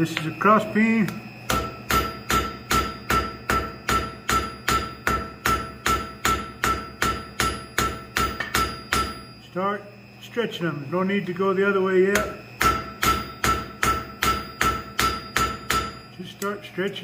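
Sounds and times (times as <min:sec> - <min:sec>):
hammer striking steel on anvil: 0:01.0 - 0:09.4, 0:12.1 - 0:16.6.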